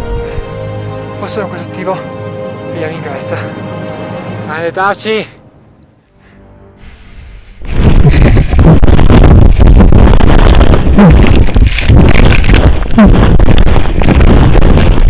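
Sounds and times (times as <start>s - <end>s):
avalanche snow rushing: 7.6s - 15.0s.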